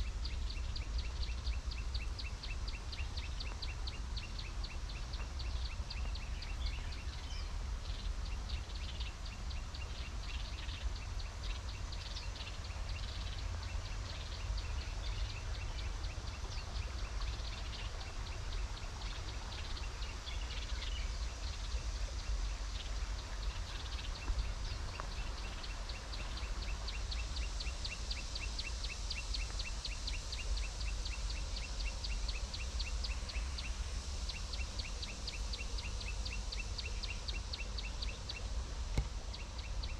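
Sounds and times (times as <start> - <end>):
steady low rumble: 0.0 - 39.9.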